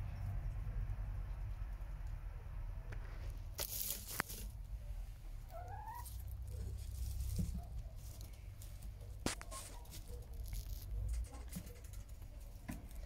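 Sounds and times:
rustling in straw: 3.0 - 11.1.

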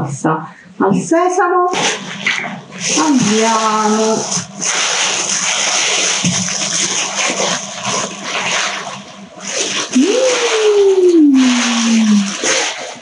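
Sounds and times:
tissue paper crinkling: 1.8 - 10.8.

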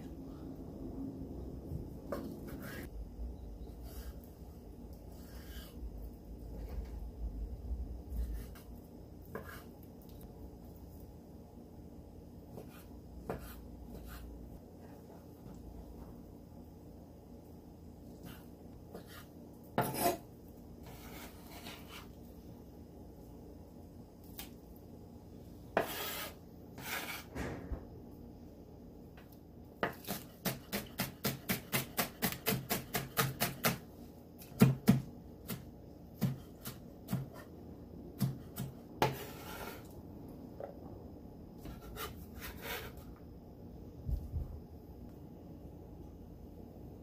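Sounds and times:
bench scraper scraping board: 19.8 - 20.2, 20.8 - 22.1, 25.8 - 27.4, 39.0 - 39.9, 41.6 - 43.0
knife chopping on wooden board: 29.8 - 33.8, 34.4 - 37.5, 38.2 - 39.7.

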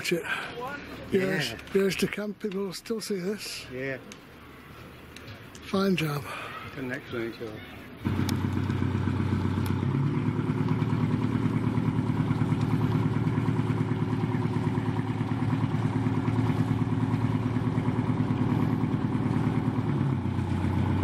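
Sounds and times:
boat engine throbbing: 8.0 - 21.0.

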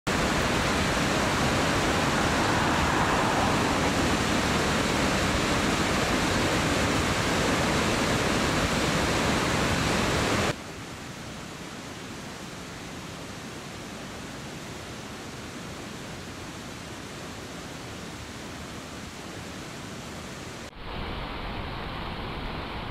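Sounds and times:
floodwater rushing: 0.1 - 10.6.

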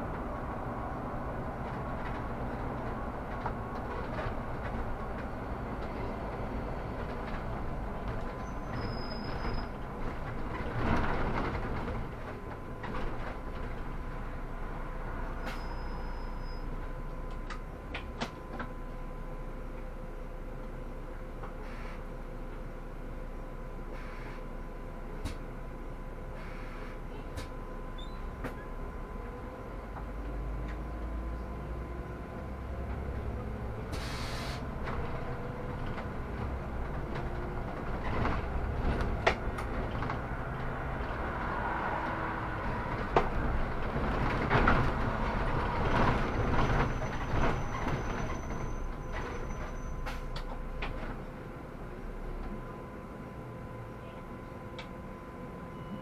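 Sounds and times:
bus engine rumble: 0.0 - 56.0
air hiss: 34.0 - 34.6.

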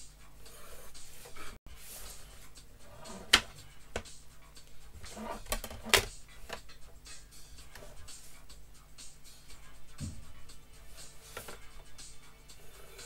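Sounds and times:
drawing tools rubbing on board: 0.3 - 4.0, 4.6 - 6.6, 7.4 - 8.6, 10.5 - 11.7, 12.3 - 13.0.

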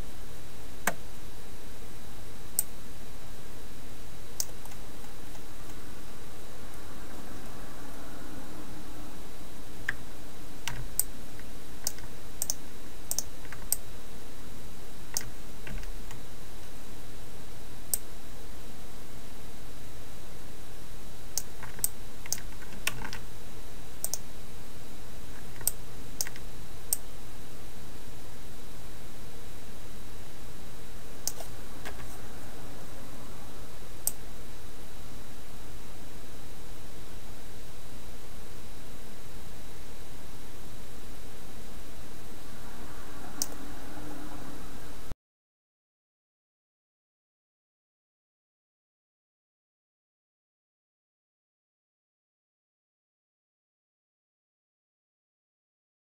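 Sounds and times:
low background hum: 0.0 - 45.2
keyboard and mouse clicks: 11.8 - 13.8, 21.4 - 23.2, 31.3 - 32.1.

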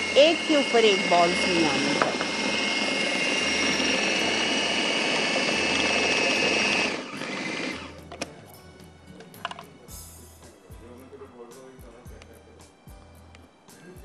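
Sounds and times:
food processor motor whining: 0.0 - 8.3.

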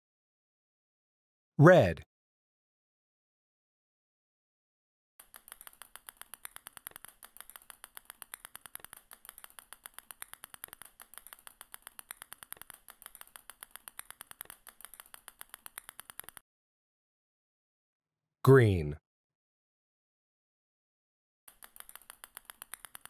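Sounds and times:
small balls clicking onto pile: 5.2 - 16.4, 21.5 - 23.0.

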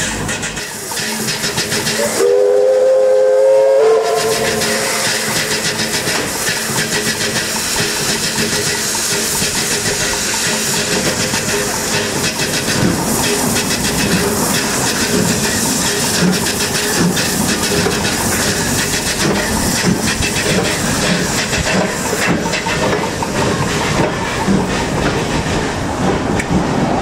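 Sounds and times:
steam train running on rails: 0.0 - 27.0
steam locomotive whistle: 0.7 - 7.9.

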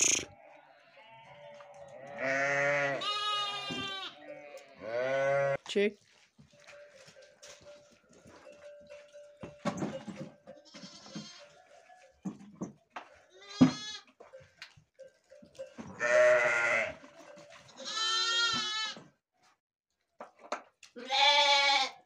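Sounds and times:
sheep bleating: 0.0 - 5.6, 10.6 - 11.6, 13.3 - 14.1, 15.9 - 17.0, 17.8 - 19.1, 21.0 - 22.0
rustling and knocks: 6.5 - 14.6.

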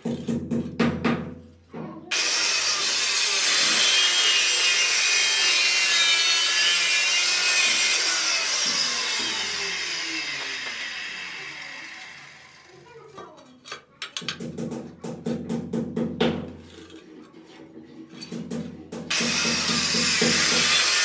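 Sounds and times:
electric tile cutter grinding: 2.1 - 12.9, 19.1 - 21.0.

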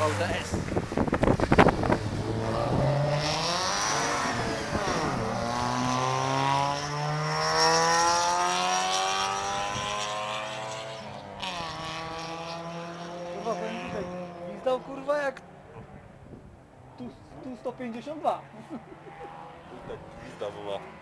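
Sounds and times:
race car engine accelerating: 0.0 - 15.0.

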